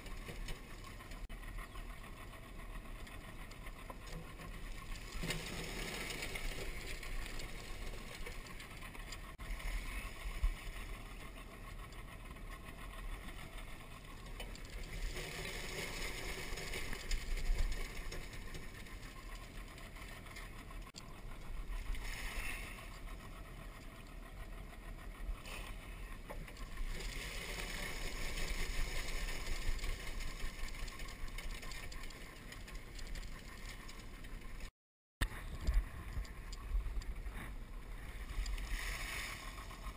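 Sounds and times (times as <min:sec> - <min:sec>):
rustling and scraping of plants: 0:00.0 - 0:01.3, 0:04.0 - 0:11.0, 0:14.0 - 0:23.0, 0:25.4 - 0:34.7, 0:35.3 - 0:39.9.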